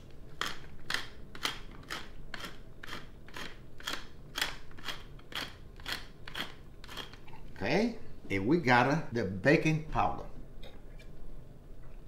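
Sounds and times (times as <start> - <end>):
pepper mill grinding: 0.3 - 7.3.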